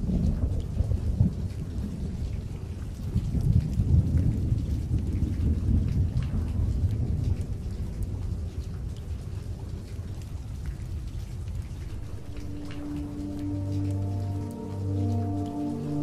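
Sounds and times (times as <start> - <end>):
heavy rain: 0.0 - 16.0
thunder rumbling: 3.2 - 16.0.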